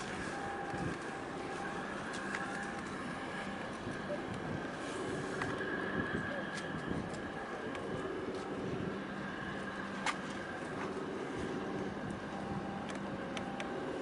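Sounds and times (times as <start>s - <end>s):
ship engines droning: 0.0s - 14.0s.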